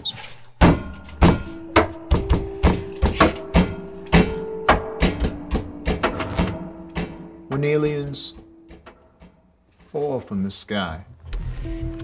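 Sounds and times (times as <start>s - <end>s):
sharp percussive hits: 0.6s - 9.7s.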